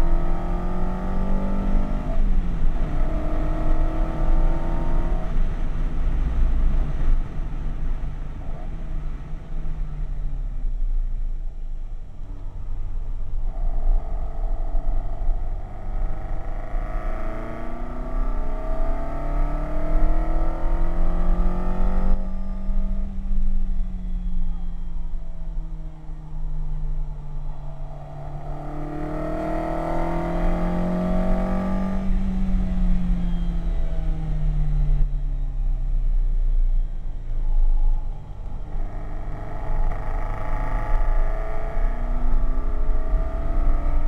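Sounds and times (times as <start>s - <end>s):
car engine revving: 12.5s - 35.4s, 37.3s - 44.0s
steady low rumble: 22.1s - 29.1s, 31.2s - 44.0s.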